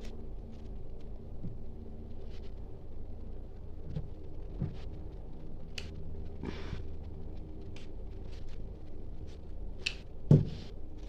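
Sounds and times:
rustle of craft materials: 0:00.0 - 0:11.0
steady low hum: 0:00.0 - 0:11.0.

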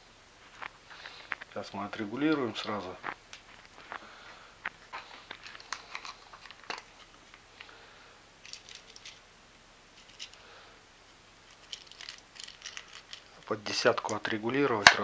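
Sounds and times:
faint rustling: 0:00.3 - 0:09.3
small objects clicking: 0:02.3 - 0:07.7, 0:08.4 - 0:09.2, 0:10.0 - 0:10.4, 0:11.4 - 0:15.0.

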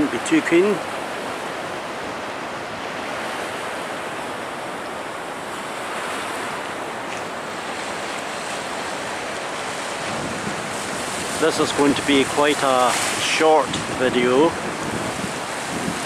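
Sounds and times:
choppy water washing: 0:00.0 - 0:16.0
strong wind on microphone: 0:09.6 - 0:16.0.

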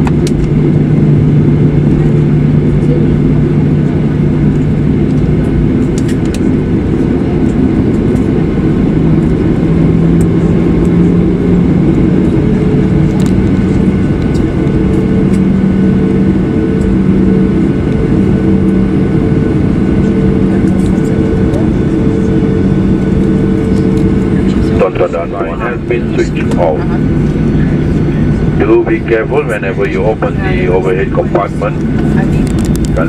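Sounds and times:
jet engines rumbling in cabin: 0:00.0 - 0:33.0.

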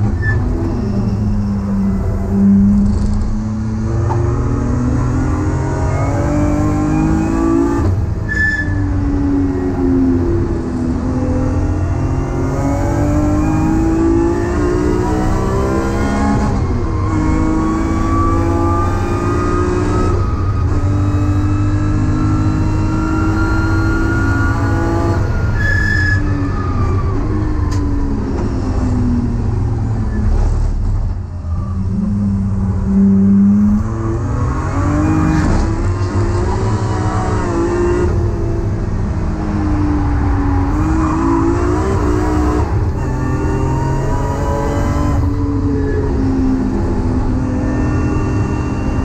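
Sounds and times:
car engine accelerating: 0:00.0 - 0:49.0.

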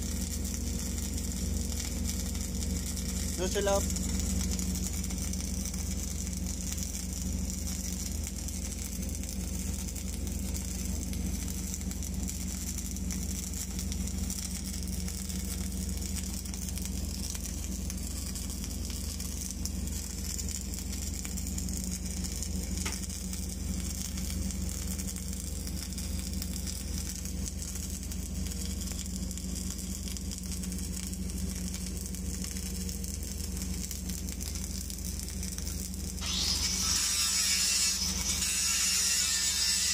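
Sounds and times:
welding arc sizzling crackle: 0:00.0 - 0:39.9
low hum: 0:17.2 - 0:39.9.

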